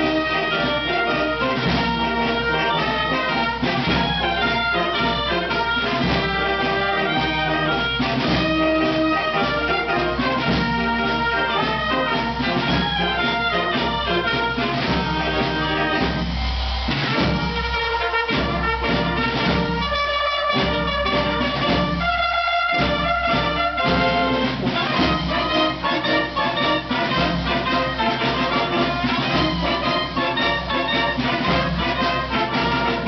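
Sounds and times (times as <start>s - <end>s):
wind band playing: 0.0s - 33.0s.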